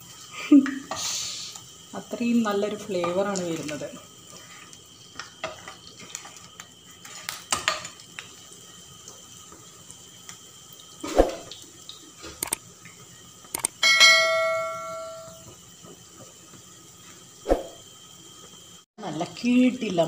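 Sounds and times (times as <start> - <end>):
food frying in oil: 0.0 - 20.0
spatula clicking in a pan: 13.5 - 13.8
metal utensil ringing: 13.8 - 15.5.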